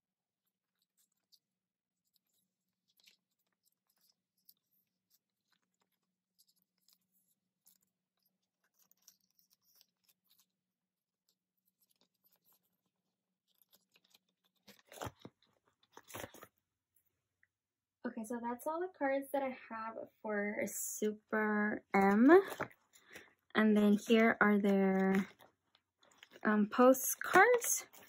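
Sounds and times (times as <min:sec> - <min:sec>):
cards rustling in plastic sleeves: 0:00.6 - 0:16.6, 0:21.9 - 0:28.0.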